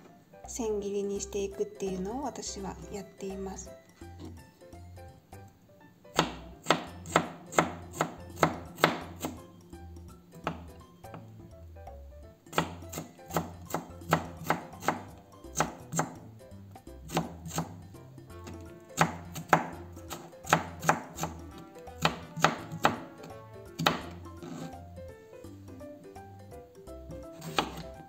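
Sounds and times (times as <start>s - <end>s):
knife chopping on a cutting board: 6.1s - 9.5s, 10.4s - 11.3s, 12.5s - 16.3s, 17.0s - 24.8s, 27.1s - 28.0s.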